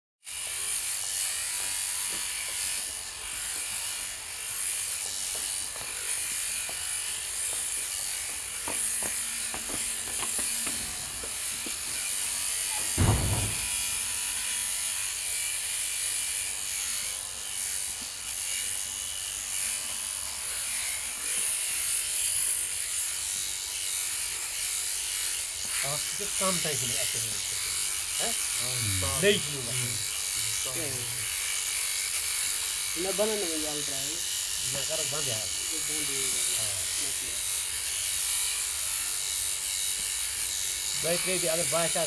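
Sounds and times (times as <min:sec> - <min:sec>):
shearing handpiece buzzing: 0:00.3 - 0:42.0
low thump: 0:12.9 - 0:13.9.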